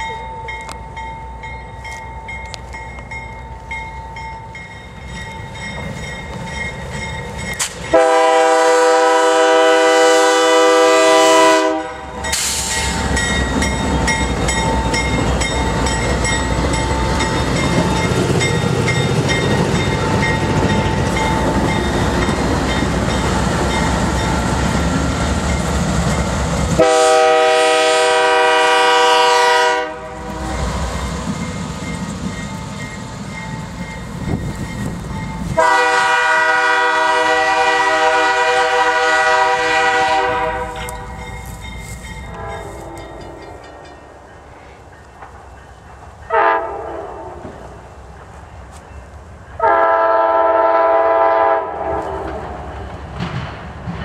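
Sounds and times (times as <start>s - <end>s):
freight train rumbling past: 0.0s - 54.0s
train air horn blast: 7.9s - 13.0s, 26.8s - 30.7s, 35.6s - 41.0s, 42.3s - 43.3s, 46.3s - 47.4s, 49.6s - 52.4s.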